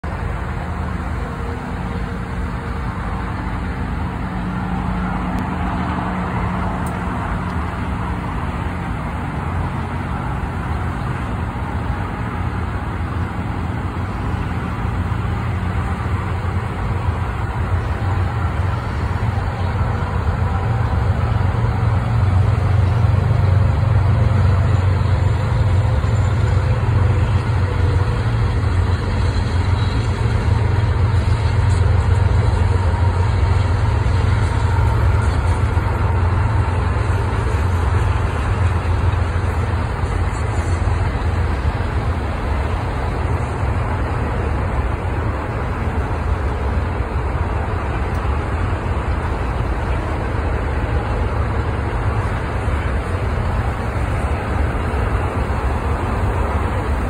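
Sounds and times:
freight train: 0:00.0 - 0:57.0
large vehicle engine drone: 0:00.0 - 0:57.0
road traffic rumble: 0:00.0 - 0:57.0.

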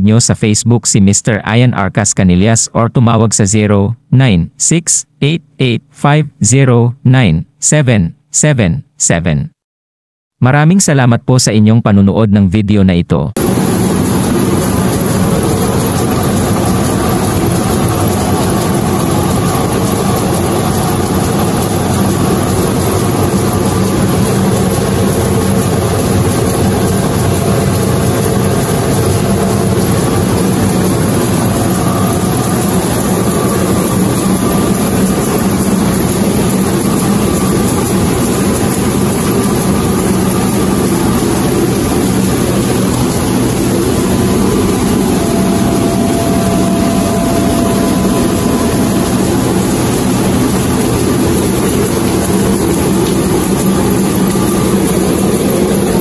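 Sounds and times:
rice milling machine drone: 0:13.4 - 0:56.0.

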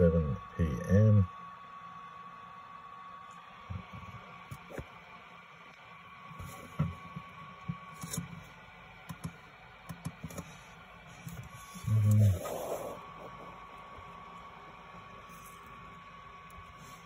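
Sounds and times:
short low hum: 0:00.0 - 0:17.0
faint steady hiss: 0:08.3 - 0:17.0.

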